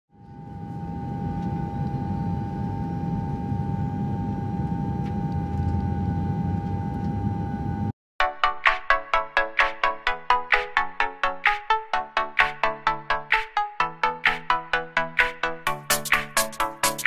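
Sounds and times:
constant high whine: 0.2 - 7.9.

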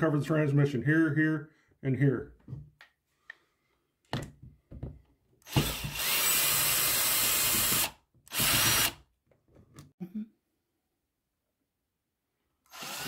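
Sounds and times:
power drill running: 5.4 - 9.0, 12.7 - 13.0.

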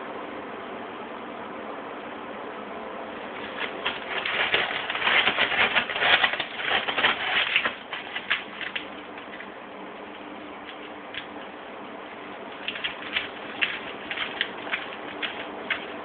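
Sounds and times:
cat scratching in litter: 3.3 - 9.6, 12.5 - 16.0.

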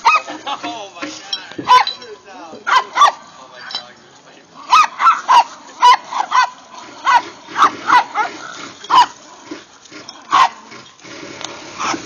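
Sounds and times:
small dogs yapping: 4.7 - 9.3, 10.2 - 10.9.

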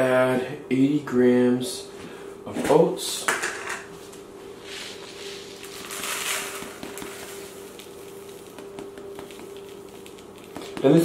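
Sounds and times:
oats pouring into plastic bowl: 5.4 - 8.6.

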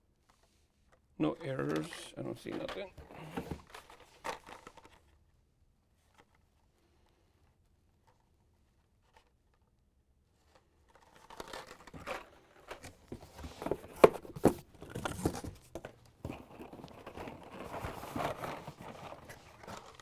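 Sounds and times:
plastic packaging crinkling: 16.4 - 20.0.

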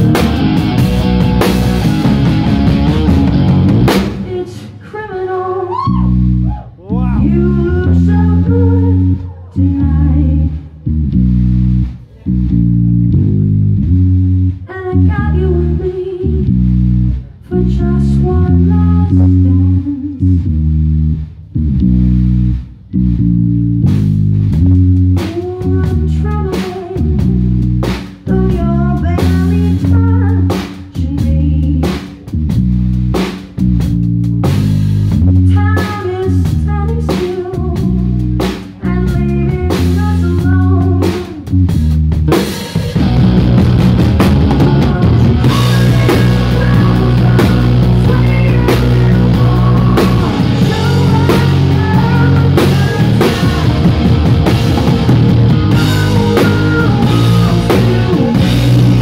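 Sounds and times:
electric guitar chords: 0.0 - 4.6, 7.0 - 59.0
woman singing: 4.1 - 6.2, 7.2 - 10.7, 14.7 - 16.5, 17.4 - 20.4, 25.2 - 27.4, 28.2 - 32.1, 35.4 - 41.6, 44.5 - 54.2, 55.7 - 59.0.

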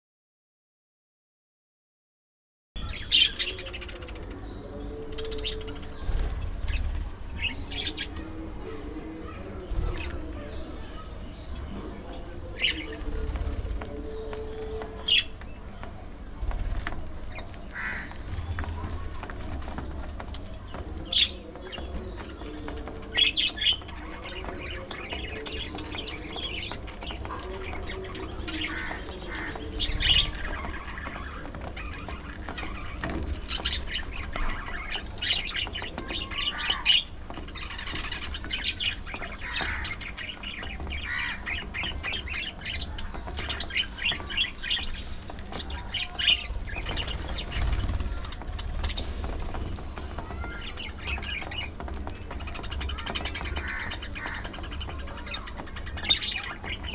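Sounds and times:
budgerigars chirping and squawking: 2.8 - 15.9, 16.7 - 56.9.

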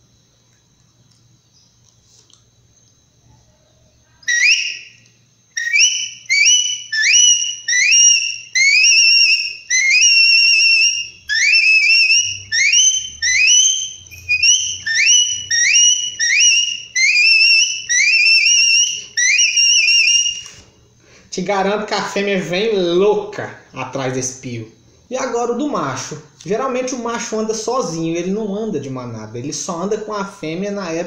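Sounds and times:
whistled animal call: 4.2 - 5.0, 5.6 - 20.6.

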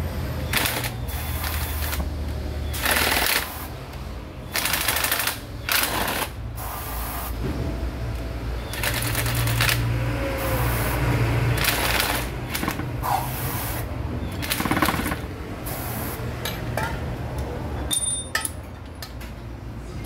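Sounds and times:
aerosol spray hisses: 6.6 - 7.3.

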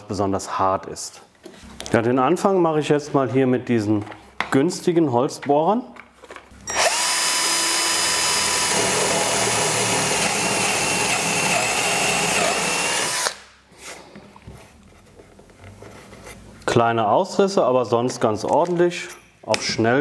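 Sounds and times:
power drill boring into wood: 6.7 - 13.4.

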